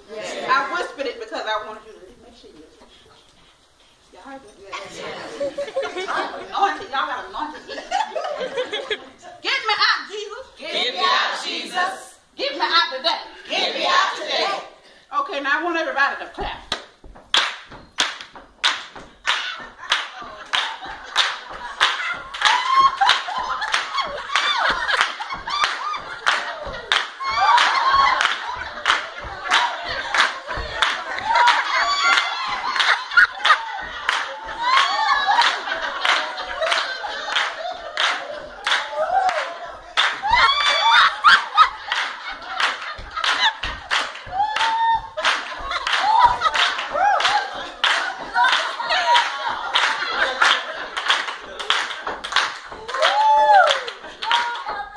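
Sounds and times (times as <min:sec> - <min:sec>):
excited voices calling out: 0:09.5 - 0:14.8, 0:25.5 - 0:42.6
group clapping in time: 0:16.7 - 0:54.9.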